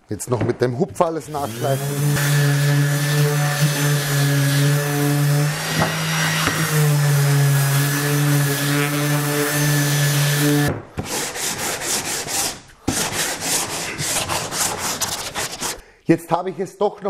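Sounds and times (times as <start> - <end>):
orbital sander running: 1.3 - 10.7
sandpaper rubbing wood by hand: 1.3 - 15.8.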